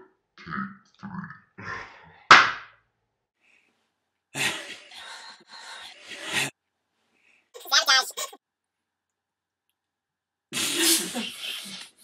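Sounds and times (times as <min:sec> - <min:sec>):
sharp slap: 0:02.3 - 0:02.7.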